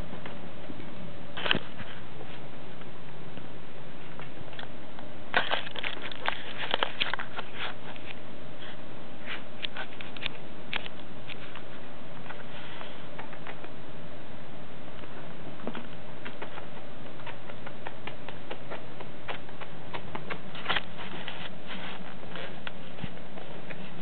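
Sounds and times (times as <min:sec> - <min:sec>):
steady low hum: 0:00.0 - 0:24.0
kitten claws clicking on chair: 0:15.7 - 0:21.2.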